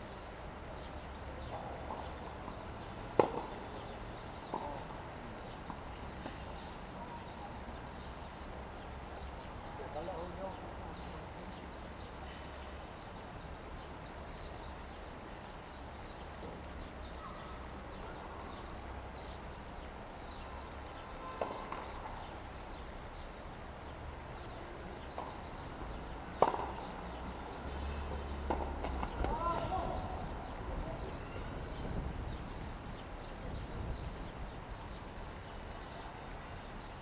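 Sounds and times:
tennis balls struck by racket: 1.4 - 4.9, 21.4 - 22.0, 26.3 - 27.0, 28.1 - 29.7.

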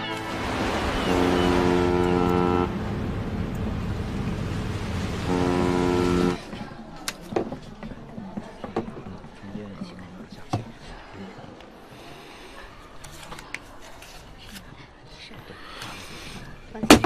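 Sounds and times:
ship horn blasts: 0.0 - 6.5
rumble of sea and engine: 0.0 - 6.8.

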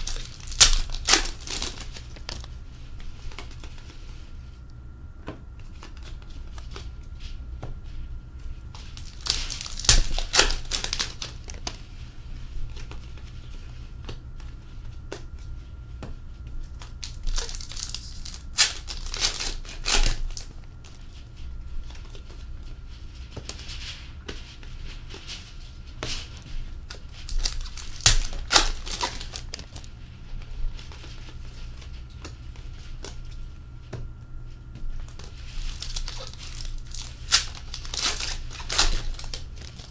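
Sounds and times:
foil packs tearing and crinkling: 0.0 - 2.5, 8.9 - 11.8, 16.8 - 21.1, 26.3 - 29.9, 35.0 - 39.9.

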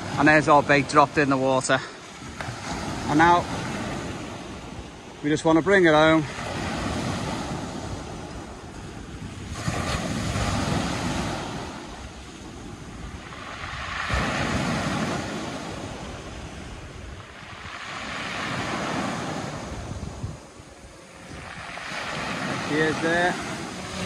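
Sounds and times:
waves breaking on pebble beach: 0.0 - 24.0.

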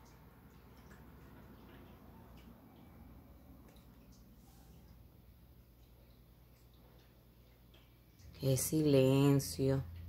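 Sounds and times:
air conditioner hum: 0.0 - 10.0
soft ticks: 5.8 - 10.0.

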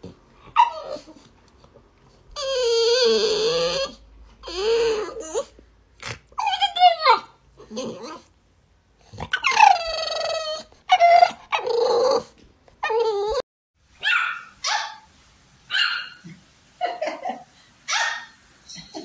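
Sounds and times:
puppy howling and whining: 0.5 - 1.3, 2.4 - 5.6, 6.4 - 8.3, 9.3 - 13.4
small dog yapping: 0.6 - 1.2, 9.3 - 13.4, 14.0 - 15.1, 15.7 - 16.2, 17.9 - 19.0.

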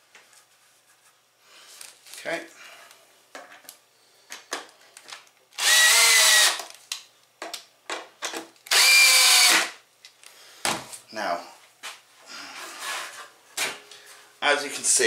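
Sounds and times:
power drill driving screws: 5.6 - 6.6, 8.7 - 9.8.

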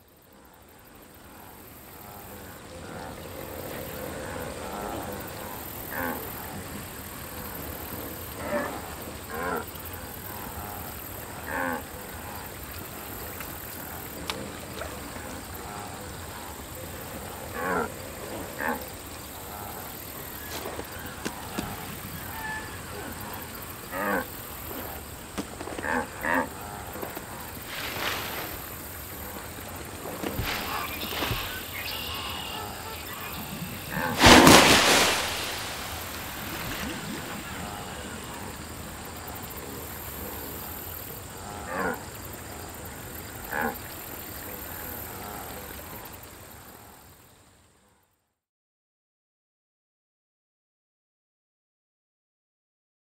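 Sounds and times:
steady background hiss: 0.0 - 48.0
loud splash: 27.7 - 29.0, 30.0 - 37.7.

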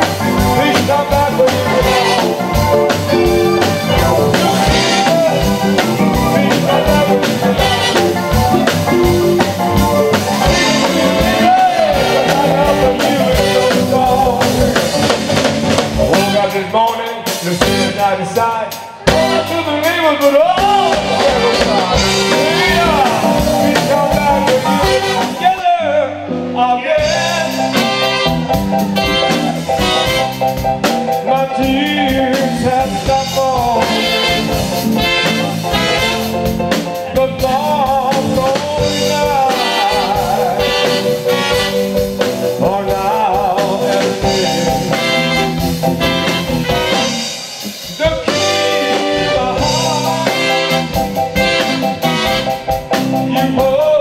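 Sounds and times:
live band playing: 0.0 - 54.0
man singing: 0.0 - 54.0.

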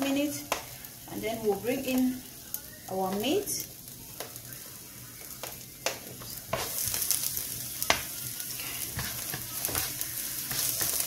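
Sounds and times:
onion sizzling in oil: 0.0 - 11.0
spatula scraping and tapping pan: 5.4 - 7.2, 8.8 - 11.0.

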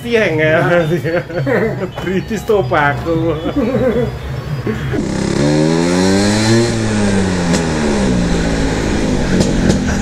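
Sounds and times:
scooter engine revving: 4.4 - 10.0.

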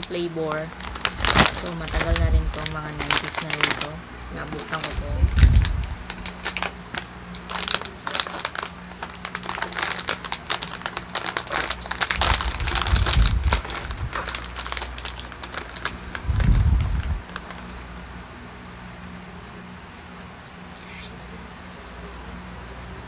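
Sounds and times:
plastic snack bag crackling: 0.0 - 18.1.

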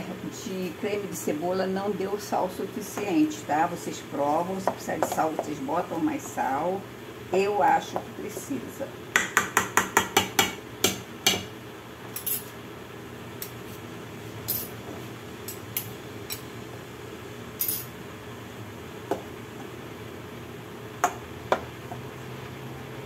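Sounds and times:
spoon tapping a pot: 9.1 - 11.5.

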